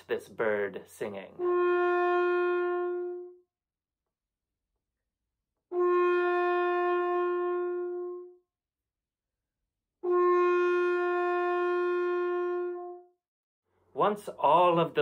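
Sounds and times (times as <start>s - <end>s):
french horn sustained note: 1.3s - 3.4s, 5.7s - 8.4s, 10.0s - 13.1s.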